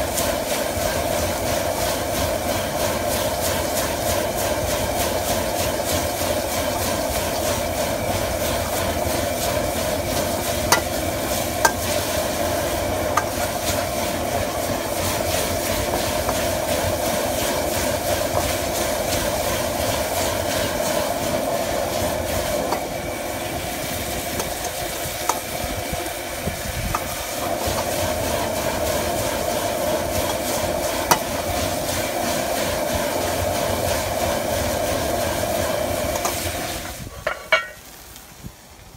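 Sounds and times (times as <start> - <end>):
food sizzling in a wok: 0.0 - 38.9
gas burner roaring: 0.0 - 38.9
metal ladle striking wok: 10.7 - 11.0, 11.6 - 12.0, 13.1 - 13.9, 31.1 - 31.4, 37.2 - 37.8.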